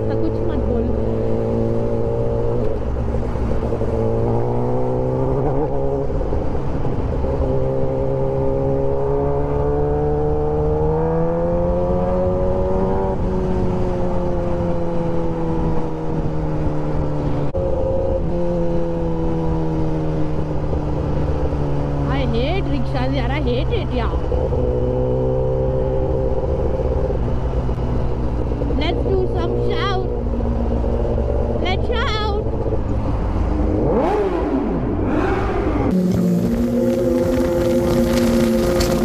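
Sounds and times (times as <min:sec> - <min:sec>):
motorcycle engine accelerating: 0:00.0 - 0:39.0.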